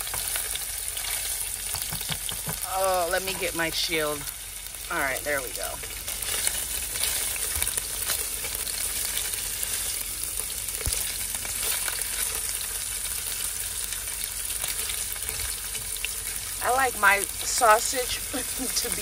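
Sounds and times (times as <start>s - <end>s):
spatula stirring in a pan: 0.0s - 2.7s, 5.8s - 16.6s
sausage sizzling in oil: 0.0s - 19.0s.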